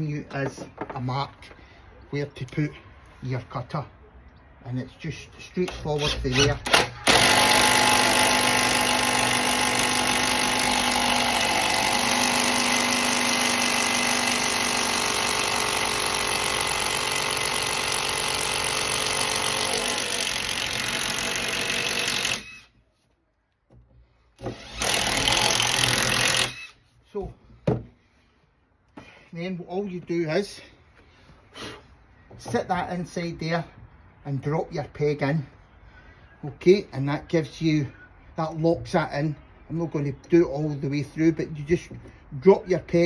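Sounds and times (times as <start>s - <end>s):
cordless drill boring into wood: 6.0s - 22.7s, 24.4s - 26.8s.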